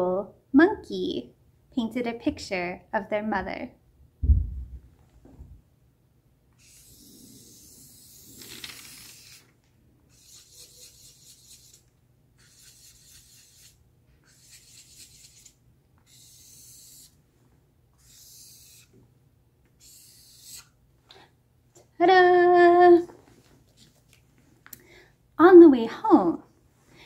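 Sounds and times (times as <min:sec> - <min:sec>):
marker scratching on paper: 0:06.6 - 0:09.4, 0:10.1 - 0:11.8, 0:12.4 - 0:17.2, 0:18.0 - 0:18.9, 0:19.8 - 0:20.7.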